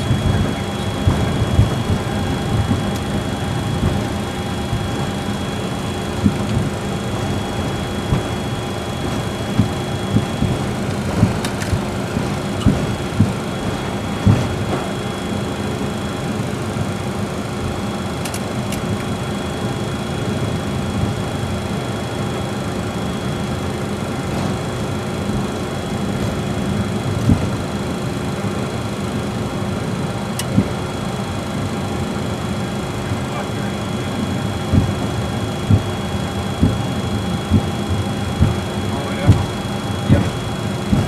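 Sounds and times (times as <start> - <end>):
jet engine rumble and whine: 0.0 - 41.0
aircraft rolling thumps: 0.1 - 5.2, 6.0 - 15.1, 36.6 - 37.8.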